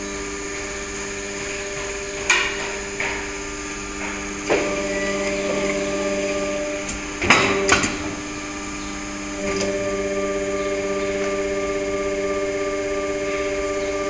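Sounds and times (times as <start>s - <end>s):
hydraulic machine hum: 0.0s - 14.0s.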